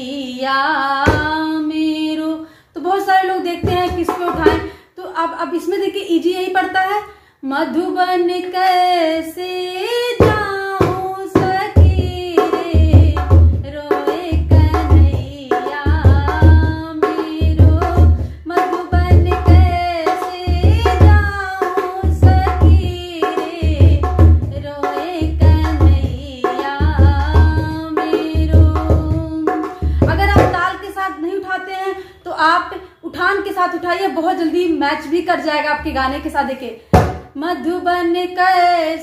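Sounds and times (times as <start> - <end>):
woman singing folk song: 0.0 - 39.0
hand drum folk rhythm: 3.6 - 4.7, 10.2 - 30.6.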